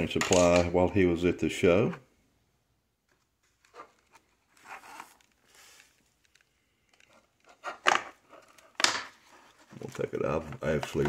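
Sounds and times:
plastic case scraping and rustling: 0:07.1 - 0:11.0.

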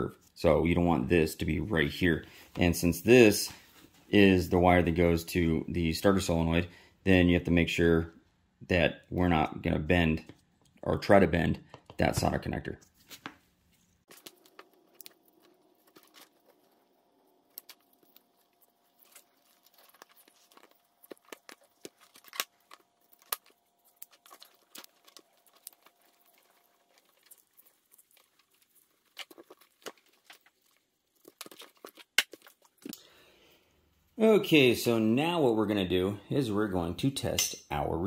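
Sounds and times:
wires and connectors clicking: 0:19.0 - 0:27.4.

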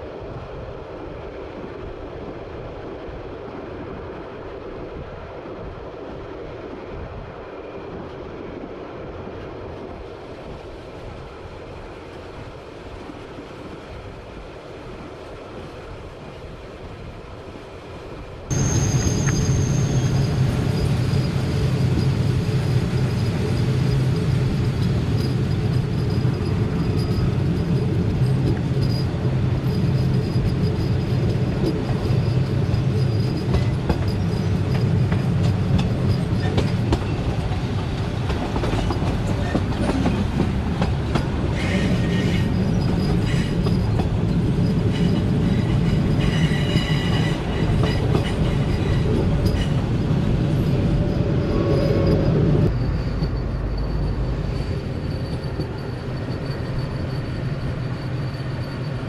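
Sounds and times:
train wheels rumbling on rails: 0:00.0 - 0:59.0
train wheels squealing: 0:18.5 - 0:59.0.

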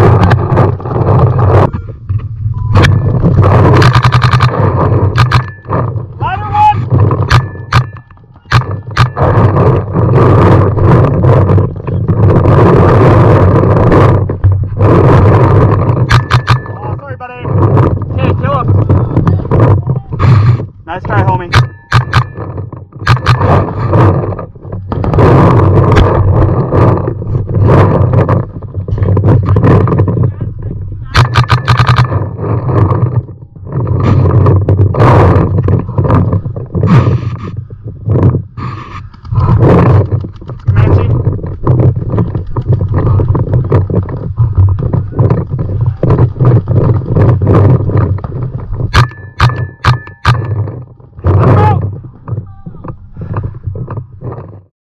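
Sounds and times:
sharp cracks: 0:00.0 - 0:54.6
pulsing rumble on microphone: 0:00.0 - 0:54.7
paintball markers firing: 0:03.6 - 0:05.8, 0:07.1 - 0:09.8, 0:21.2 - 0:24.2, 0:31.1 - 0:33.2.

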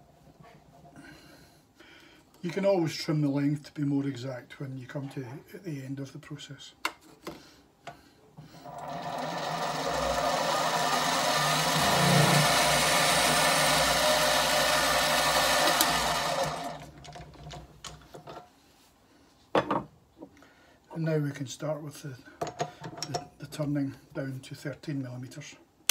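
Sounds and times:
mini metal lathe running: 0:08.6 - 0:16.9.

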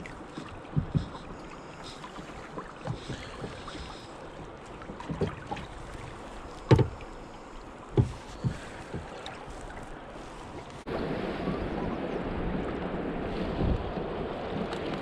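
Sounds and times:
fishing gear knocking in a boat: 0:00.0 - 0:07.2, 0:07.9 - 0:09.4
wind and water hiss: 0:00.0 - 0:15.0.

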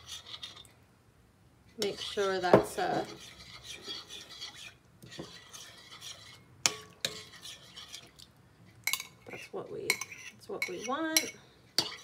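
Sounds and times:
metal spoon stirring in bowl: 0:00.0 - 0:00.8, 0:01.7 - 0:12.0
spoon clinking against bowl: 0:08.9 - 0:12.0.

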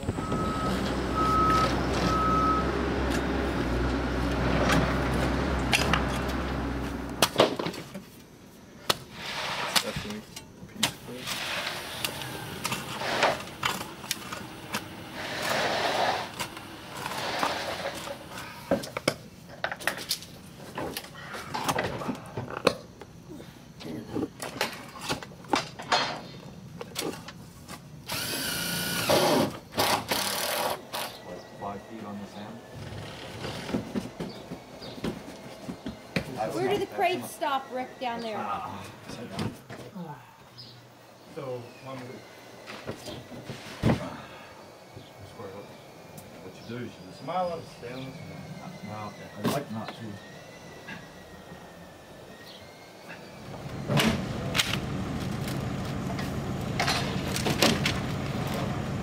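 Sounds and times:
reversing alarm beeping: 0:00.0 - 0:02.8
heavy machine engine running: 0:00.0 - 0:07.2, 0:53.3 - 0:59.0
machine whine: 0:41.0 - 0:59.0.

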